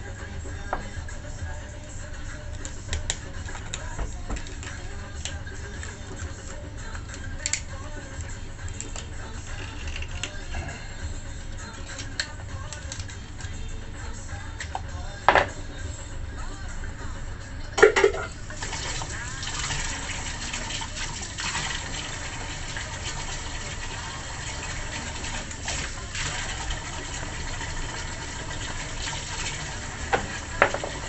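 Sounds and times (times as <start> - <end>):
tap water running: 17.8 - 31.0.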